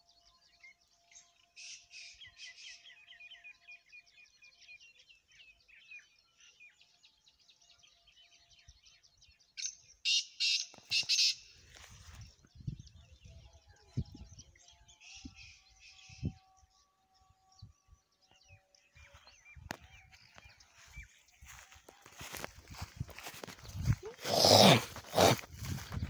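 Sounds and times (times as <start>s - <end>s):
small birds chirping: 0.0s - 26.0s
harsh bird call: 23.7s - 25.9s.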